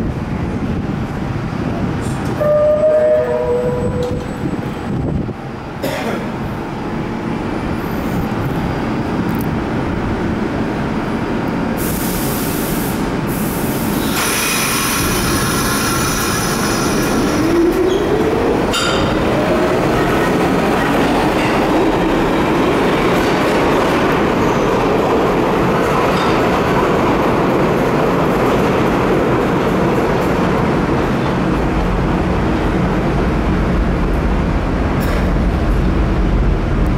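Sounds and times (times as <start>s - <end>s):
wheels rumbling on rails: 0.0s - 11.8s, 13.1s - 36.9s
air hiss: 11.8s - 17.3s.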